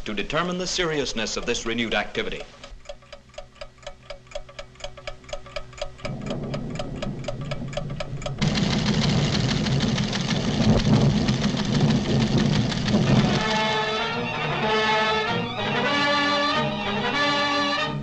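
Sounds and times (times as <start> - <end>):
clockwork ticking: 0.0 - 17.4
loud dense rumbling: 6.0 - 14.0.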